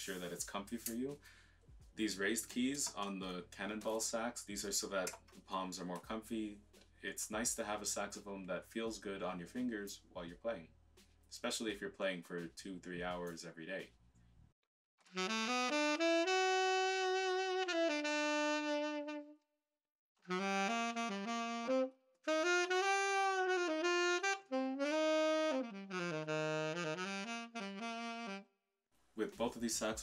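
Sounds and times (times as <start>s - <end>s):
solo tenor saxophone: 15.1s - 19.5s, 20.2s - 28.6s.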